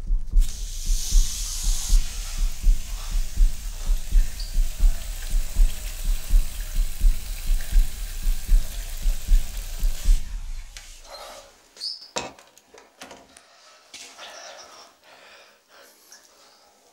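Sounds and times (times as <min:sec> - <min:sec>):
heartbeat thumps: 0:00.0 - 0:11.1
faint hiss: 0:00.0 - 0:11.9.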